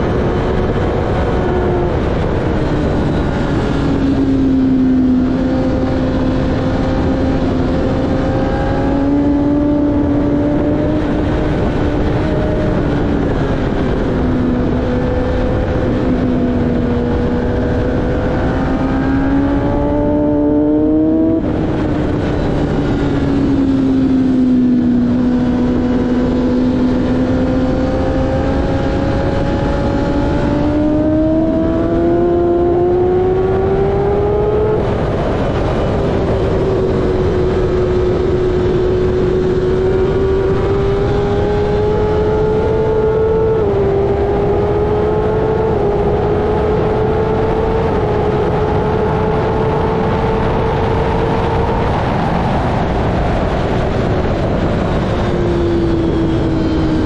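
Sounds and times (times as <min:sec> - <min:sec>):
motorcycle engine at high revs: 0:00.0 - 0:57.0
wind rushing over microphone: 0:00.0 - 0:57.0.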